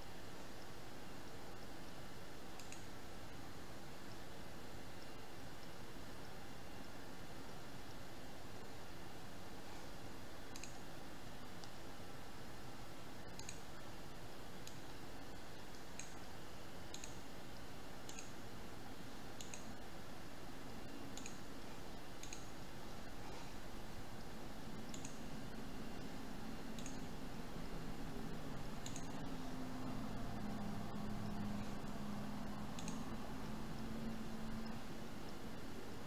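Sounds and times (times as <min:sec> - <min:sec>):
faint background hiss: 0:00.0 - 0:36.0
computer mouse clicking: 0:02.5 - 0:03.0, 0:05.0 - 0:05.8, 0:10.4 - 0:11.9, 0:13.2 - 0:13.9, 0:14.6 - 0:17.3, 0:18.0 - 0:18.4, 0:19.3 - 0:19.9, 0:20.7 - 0:23.6, 0:24.7 - 0:27.3, 0:27.9 - 0:36.0.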